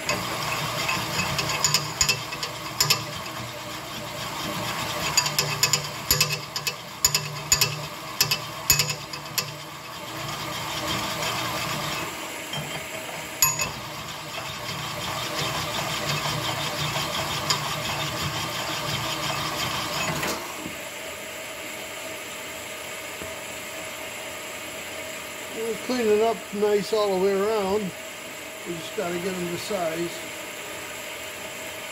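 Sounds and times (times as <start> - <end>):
honing machine grinding: 0.0 - 9.6
metal clinks: 13.4 - 13.8.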